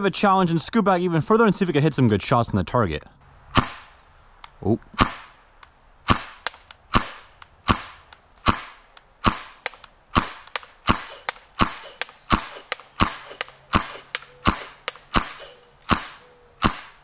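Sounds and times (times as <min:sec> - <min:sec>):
airsoft pistol shots: 0:03.5 - 0:04.0, 0:05.0 - 0:05.4, 0:06.0 - 0:17.0
faint clicks: 0:04.2 - 0:05.0, 0:05.6 - 0:16.0.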